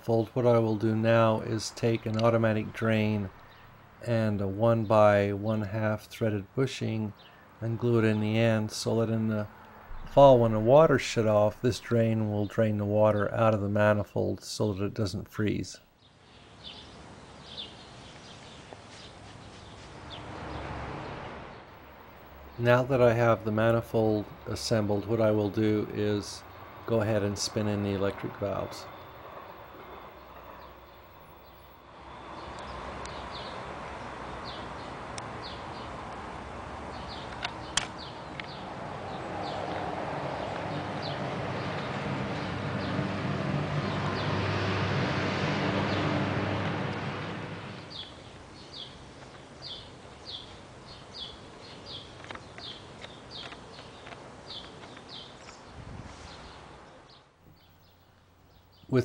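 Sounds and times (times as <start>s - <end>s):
bird chirping: 16.0s - 20.7s, 21.5s - 36.0s, 36.9s - 43.2s, 47.7s - 59.0s
engine-like hum with hiss: 31.8s - 51.0s.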